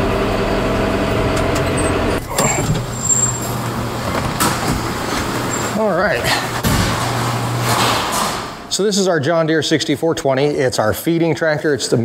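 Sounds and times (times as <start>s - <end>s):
tractor diesel engine running: 0.0s - 5.9s.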